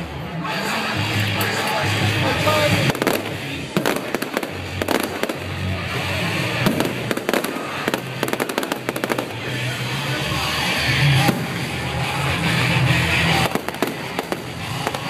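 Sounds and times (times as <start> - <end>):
fireworks cracking and popping: 2.5 - 9.7, 11.2 - 12.2, 13.0 - 15.0.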